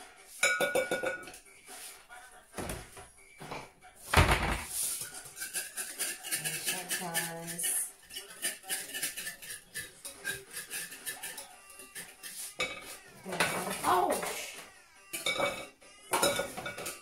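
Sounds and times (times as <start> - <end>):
utensil clinking against bowls: 0.4 - 1.5, 4.9 - 17.0.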